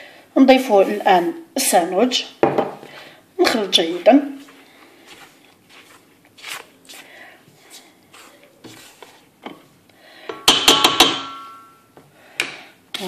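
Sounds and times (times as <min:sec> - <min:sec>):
spatula scraping flour in metal bowl: 0:08.1 - 0:09.3
sharp knocks on ringing bowl: 0:10.3 - 0:11.9.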